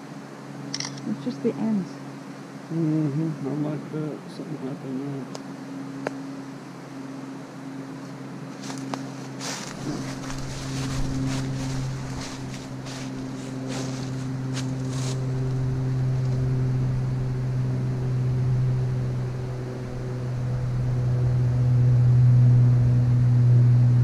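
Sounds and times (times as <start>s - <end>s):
engine drone: 0.0s - 24.0s
footsteps crunching dry leaves: 8.5s - 15.9s.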